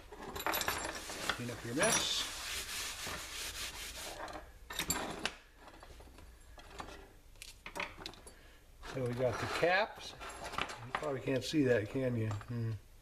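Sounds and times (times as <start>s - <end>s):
towel rubbing on wooden bench: 0.9s - 4.2s.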